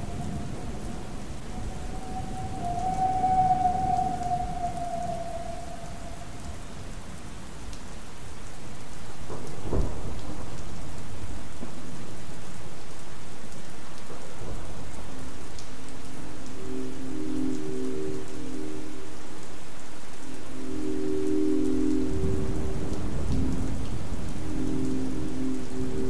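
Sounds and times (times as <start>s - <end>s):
synthesized train whistle: 0.0s - 7.0s, 16.5s - 19.3s, 20.2s - 23.8s
steady rain: 0.0s - 26.0s
thunderclap: 9.2s - 12.0s
synthesized train horn chord: 16.6s - 19.2s, 20.3s - 26.0s.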